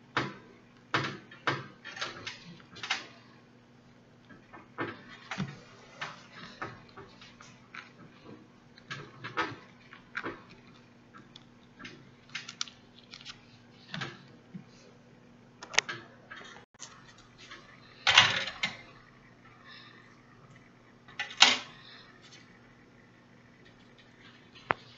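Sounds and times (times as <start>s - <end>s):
faint steady hum: 0.0s - 24.9s
hand sewing clicks and rustles: 4.8s - 14.4s.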